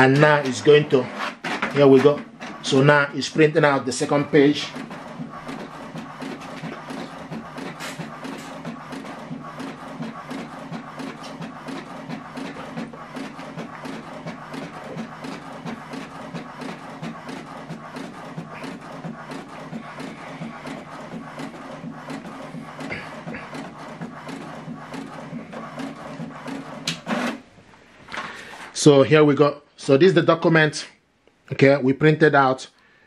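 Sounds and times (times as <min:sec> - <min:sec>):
printer motor hum: 0:00.0 - 0:27.4
print-head carriage clicks: 0:03.6 - 0:27.4.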